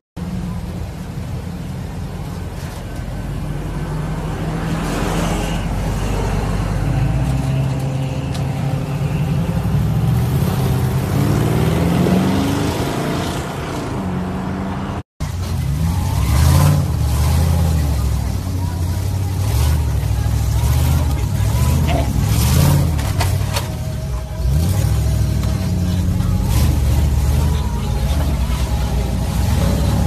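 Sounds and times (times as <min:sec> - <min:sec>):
pickup truck engine accelerating: 0:00.2 - 0:30.0
car engine running: 0:15.2 - 0:30.0.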